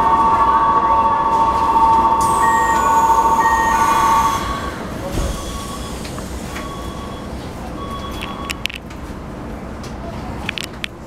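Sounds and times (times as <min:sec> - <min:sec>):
two-tone door-closing signal: 0:00.0 - 0:08.8
short high beeps: 0:00.3 - 0:06.0
train doors sliding shut: 0:01.1 - 0:09.2.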